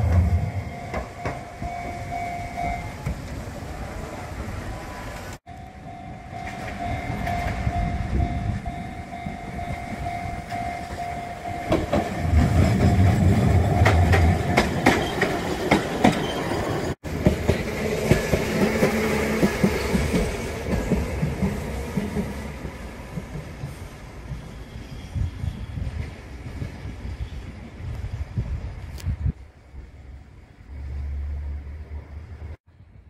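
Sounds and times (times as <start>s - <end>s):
level crossing warning bell: 0.0s - 3.1s, 5.5s - 15.6s
tram rumbling past: 0.0s - 33.0s
wheels clicking over rail joints: 9.5s - 24.6s.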